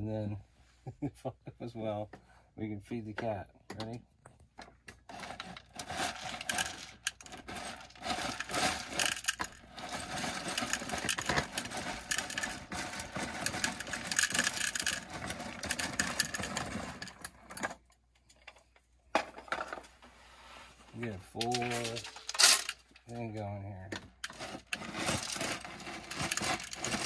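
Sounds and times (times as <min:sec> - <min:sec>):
cat kibble rattling into bowl: 0:05.1 - 0:17.6.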